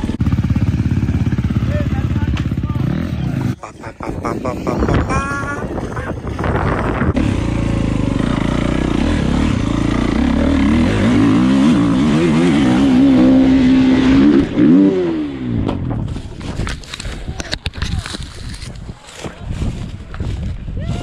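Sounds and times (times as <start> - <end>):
dirt bike engine revving: 0.0 - 15.8.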